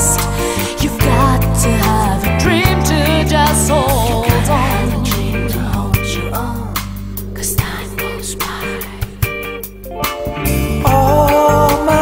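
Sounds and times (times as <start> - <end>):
pop song with bass and drums: 0.0 - 12.0.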